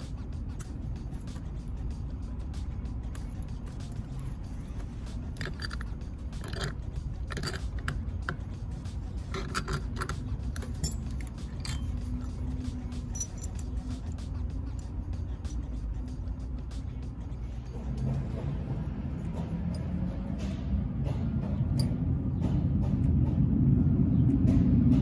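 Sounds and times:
steady low hum: 0.0s - 25.0s
small metallic clicks and clinks: 5.0s - 14.9s, 21.7s - 22.0s.

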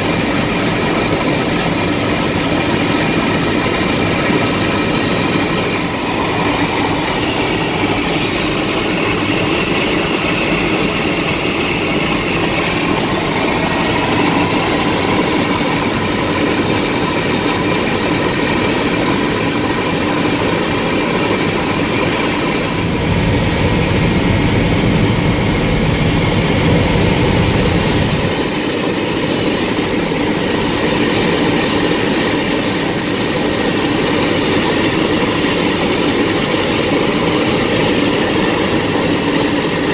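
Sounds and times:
helicopter engine and rotor: 0.0s - 39.9s
deep low rumble: 4.7s - 17.8s, 22.5s - 28.3s.

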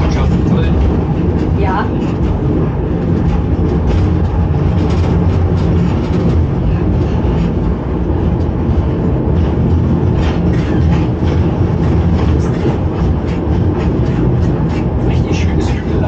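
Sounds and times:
electric train rumbling: 0.0s - 16.0s
wheels clicking over track: 0.0s - 16.0s.

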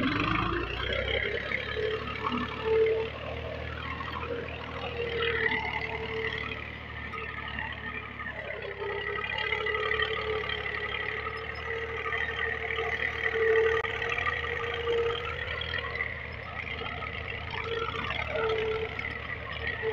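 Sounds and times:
tractor diesel engine under load: 0.0s - 19.9s.

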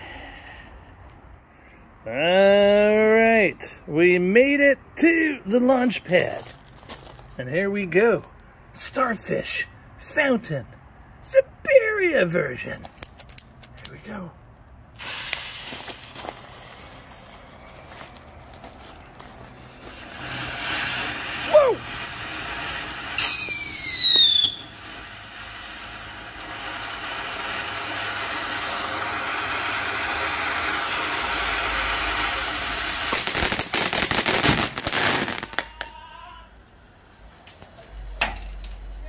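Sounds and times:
firework crackling pops: 12.8s - 14.0s, 15.0s - 36.0s, 36.7s - 39.0s
firework fountain hissing: 14.9s - 36.0s, 36.6s - 39.0s
falling firework whistle: 19.8s - 36.0s.

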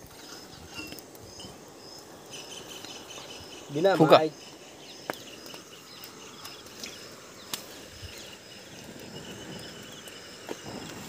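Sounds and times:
insects chirping: 0.0s - 11.0s
sharp clicks: 5.0s - 7.7s.

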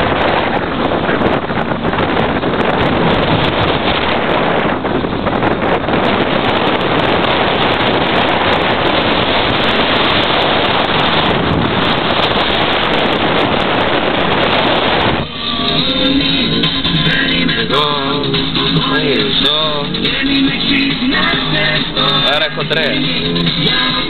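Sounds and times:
road and engine noise: 0.0s - 24.0s
wind rushing over microphone: 0.0s - 24.0s
guitar music: 15.2s - 24.0s.

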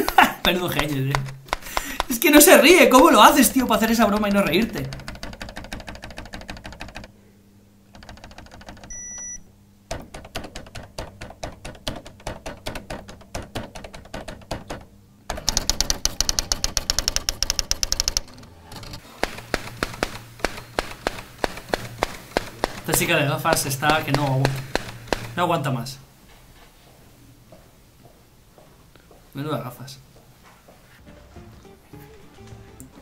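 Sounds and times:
typewriter keystrokes clattering: 0.0s - 7.1s, 7.9s - 8.9s, 9.9s - 25.4s.

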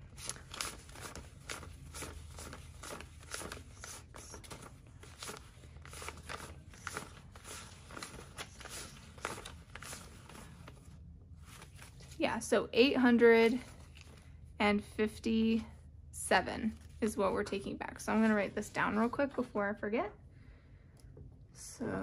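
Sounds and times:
banknotes rustling while counted: 0.0s - 12.4s.

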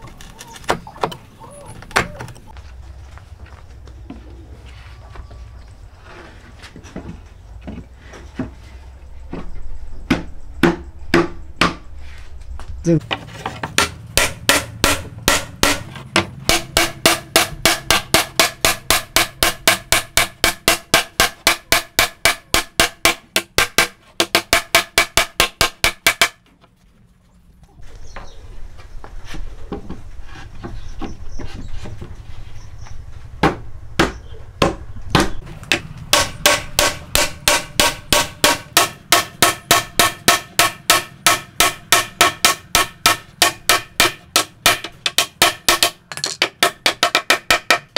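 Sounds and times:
handling noise from boards: 13.0s - 26.7s
hammer blows on wood: 13.8s - 26.4s, 33.4s - 47.9s.

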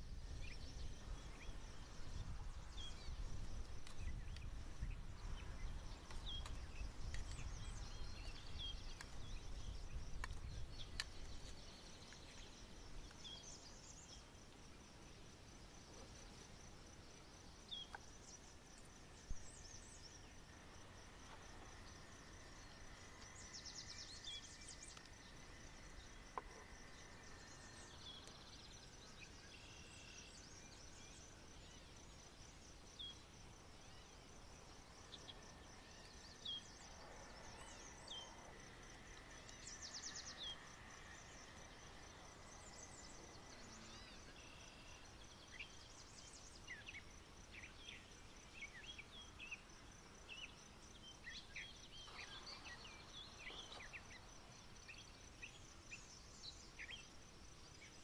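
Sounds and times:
small birds chirping: 0.4s - 14.8s.

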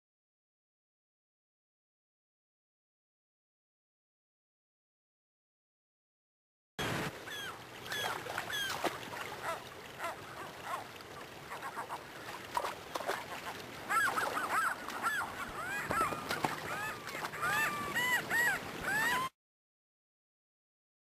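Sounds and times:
gulls squawking: 6.8s - 19.3s
shallow river rushing: 6.8s - 19.3s.

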